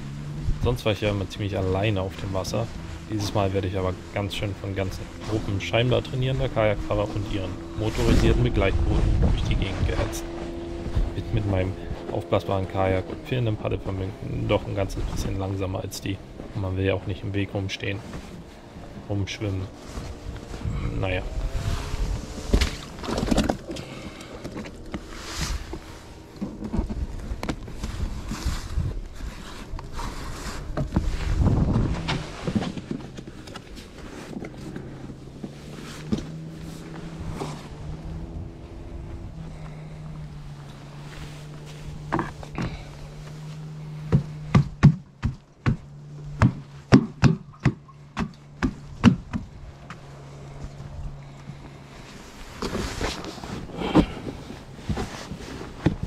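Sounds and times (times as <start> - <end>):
low uneven rumble: 0.0 - 56.0
steady low hum: 0.0 - 56.0
sharp hard knocks: 44.0 - 49.5.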